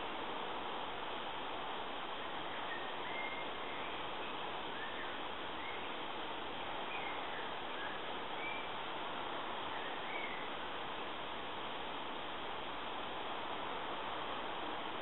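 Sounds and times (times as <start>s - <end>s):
steady outdoor hiss: 0.0s - 15.0s
faint bird chirps: 2.4s - 6.0s, 6.8s - 8.8s, 9.7s - 10.6s.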